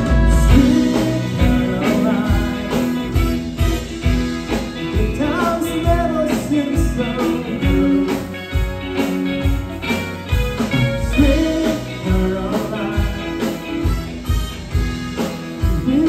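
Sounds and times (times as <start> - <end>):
person singing: 0.0 - 3.8, 4.7 - 8.8, 10.7 - 13.9, 15.6 - 16.0
drum beat: 0.0 - 16.0
electric bass: 0.0 - 16.0
electric guitar: 0.0 - 16.0
keyboard: 0.0 - 16.0.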